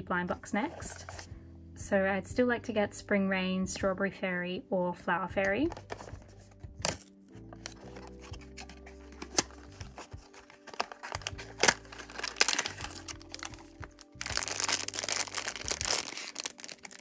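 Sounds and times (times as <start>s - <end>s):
soft background music: 0.0s - 17.0s
foil bag crinkling: 7.7s - 17.0s.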